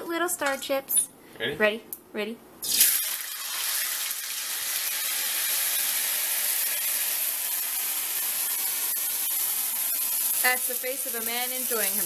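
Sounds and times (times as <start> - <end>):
noodles sizzling in hot oil: 2.6 - 12.0.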